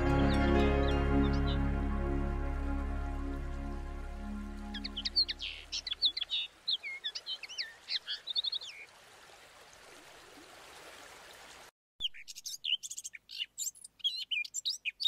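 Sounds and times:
songbird singing: 0.0 - 8.9, 12.0 - 15.0.

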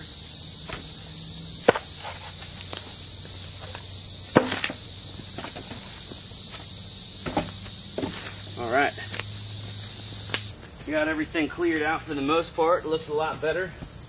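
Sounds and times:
high insect drone: 0.0 - 14.0
logs dropped onto logs: 0.7 - 0.9, 1.6 - 2.9, 3.6 - 6.6, 7.2 - 8.5
footsteps snapping twigs: 1.6 - 10.9.

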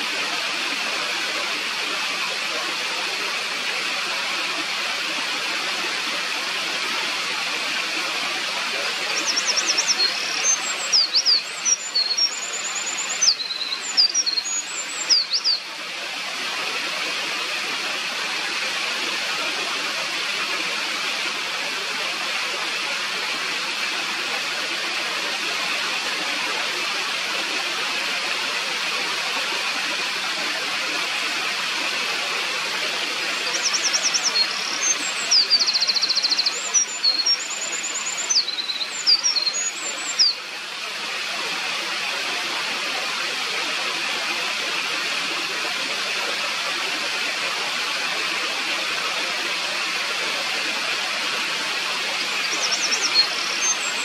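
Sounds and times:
stream rushing: 0.0 - 54.0
wren singing trills: 9.1 - 15.6, 33.5 - 40.4, 52.4 - 54.0.

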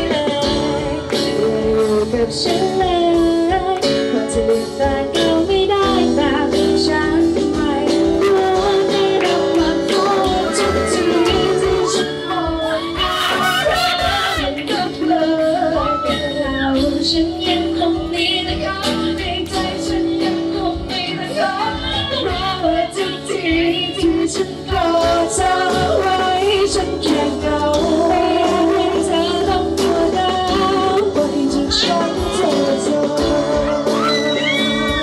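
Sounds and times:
instrumental accompaniment: 0.0 - 35.0
man and woman singing duet: 0.0 - 35.0.

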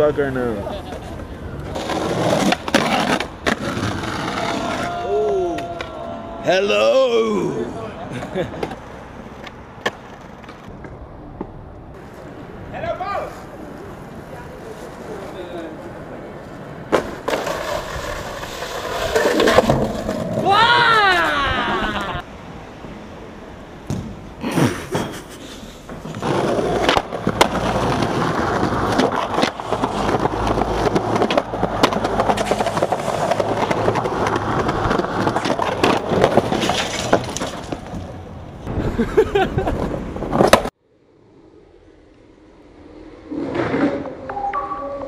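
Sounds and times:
skateboard rolling on concrete: 0.0 - 6.6, 7.2 - 45.0
skateboard clacks: 16.9 - 20.5, 25.8 - 38.2.

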